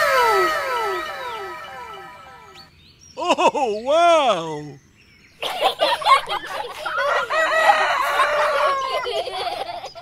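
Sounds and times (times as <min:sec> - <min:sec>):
rooster crowing: 0:00.0 - 0:02.5, 0:07.0 - 0:09.2
chickens clucking and squawking: 0:00.0 - 0:02.7, 0:05.4 - 0:10.0.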